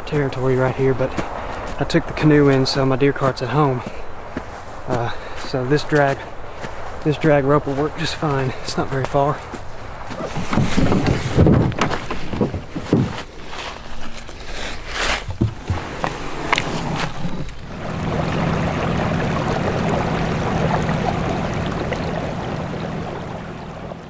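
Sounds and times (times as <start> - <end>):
water rushing along canoe: 6.2 - 13.9, 14.5 - 24.0
footsteps through dry leaves: 13.2 - 15.4
electric motor humming: 15.5 - 24.0.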